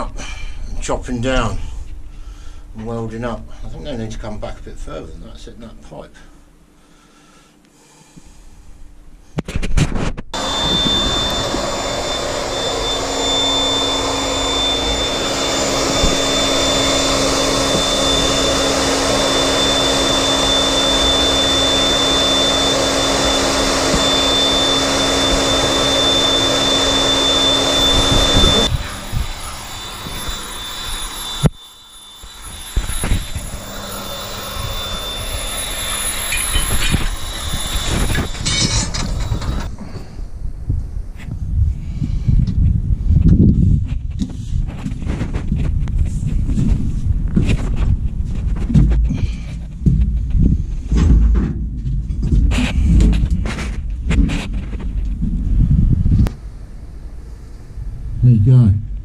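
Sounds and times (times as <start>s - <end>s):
drill whining through steel: 10.4s - 40.2s.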